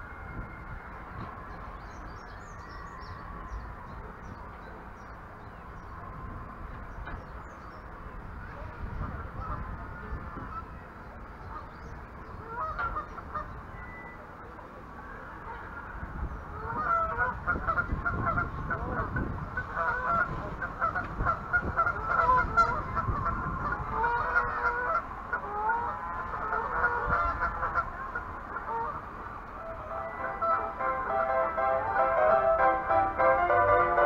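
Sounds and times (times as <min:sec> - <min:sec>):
geese honking: 0:12.4 - 0:13.6, 0:16.6 - 0:34.0.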